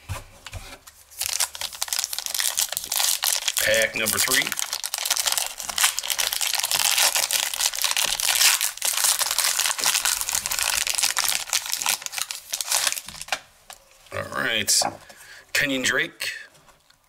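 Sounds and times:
wrapper tearing and crinkling: 1.1s - 13.8s.

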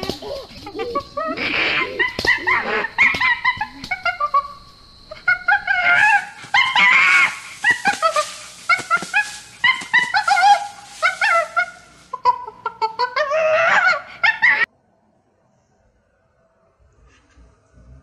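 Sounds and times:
animal yelping and whimpering: 0.0s - 4.5s, 5.1s - 14.7s.

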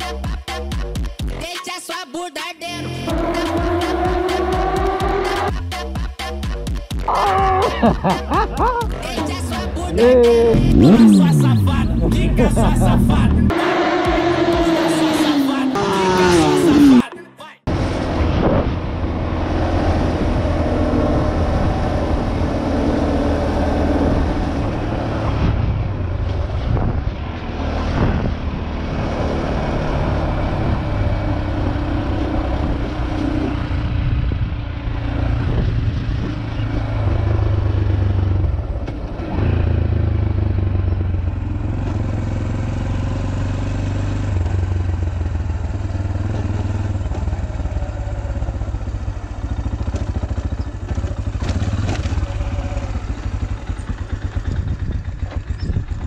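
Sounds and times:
motorcycle engine running: 7.0s - 15.0s, 17.7s - 56.0s
wind rushing: 23.8s - 29.6s.

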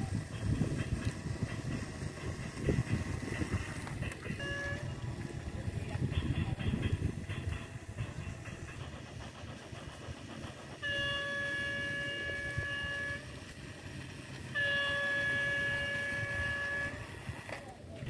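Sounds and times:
low continuous rumble: 0.0s - 18.0s
toy train electronic horn: 4.2s - 5.0s, 10.8s - 13.5s, 14.5s - 17.3s.

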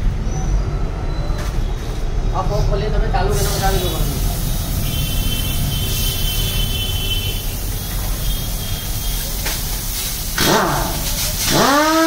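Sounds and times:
air hissing through hose: 3.3s - 12.0s.

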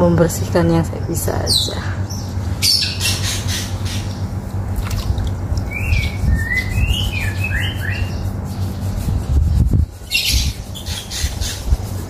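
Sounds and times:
low background rumble: 0.0s - 12.0s
bird chirping: 5.6s - 8.3s
rustling scrape: 7.9s - 12.0s.

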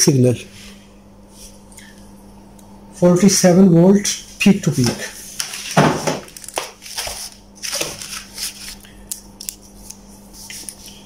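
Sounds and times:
faint steady hum: 0.0s - 11.0s
paper rustling: 4.8s - 11.0s.

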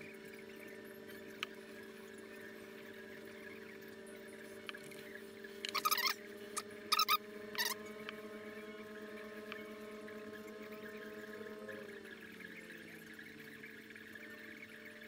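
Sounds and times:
electrical hum of power unit: 0.0s - 15.0s
short squeaky chirps: 5.6s - 6.2s, 6.9s - 7.8s.

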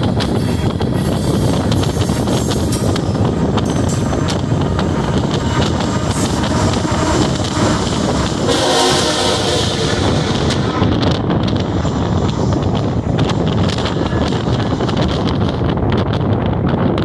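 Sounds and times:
freight train rolling and clattering: 0.0s - 17.0s
locomotive air horn: 3.1s - 15.1s.

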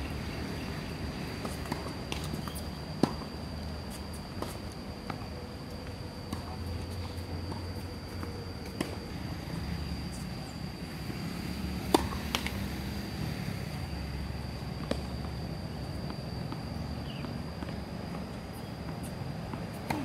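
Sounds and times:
tennis ball bouncing: 11.9s - 12.6s.

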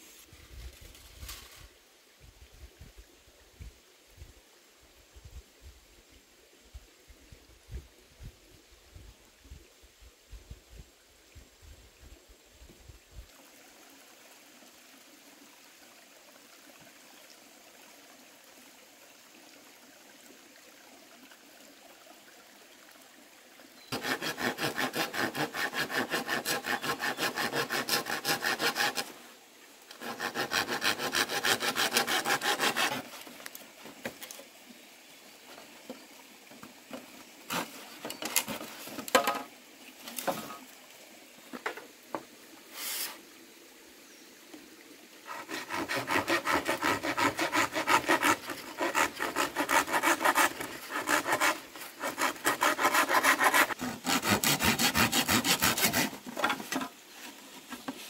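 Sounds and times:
hand saw cutting wood: 23.9s - 29.2s, 29.9s - 34.3s, 37.5s - 39.4s, 45.3s - 56.9s.

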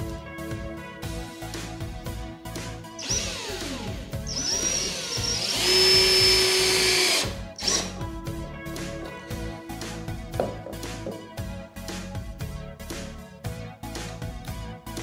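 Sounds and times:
power drill driving a screw: 3.0s - 8.0s.

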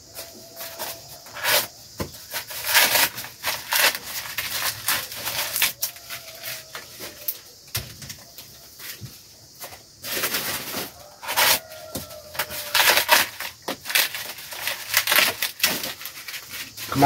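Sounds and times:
dry corn husks crackling and tearing: 0.1s - 9.0s, 9.6s - 17.0s.

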